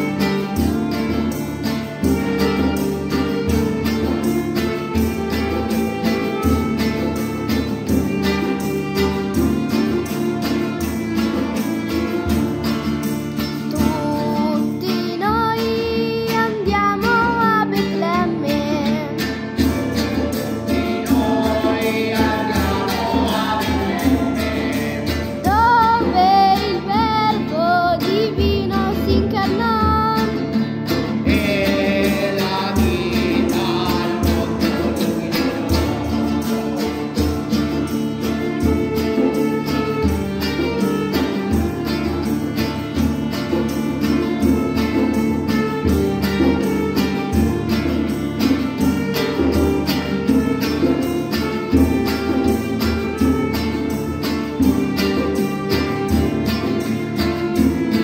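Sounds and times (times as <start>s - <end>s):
small acoustic band playing: 0.0s - 58.0s
woman singing: 13.7s - 19.4s, 20.7s - 30.6s.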